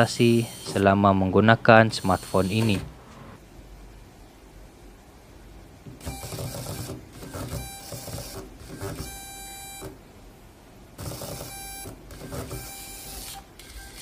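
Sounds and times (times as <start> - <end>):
motorised phone camera whirring: 0.3 - 0.8, 6.0 - 10.0, 11.0 - 14.0.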